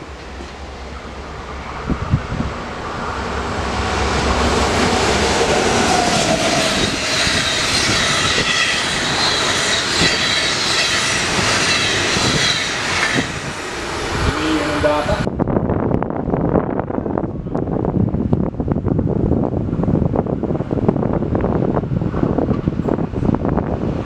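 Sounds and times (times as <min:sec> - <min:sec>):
passenger train passing: 0:00.0 - 0:24.0
high whining tones: 0:02.8 - 0:15.3.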